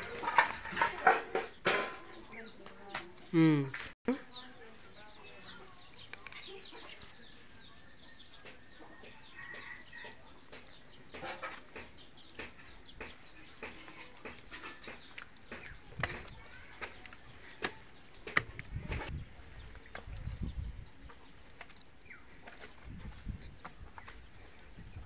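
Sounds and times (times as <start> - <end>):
chickens clucking: 0.0 - 3.5, 4.2 - 25.0.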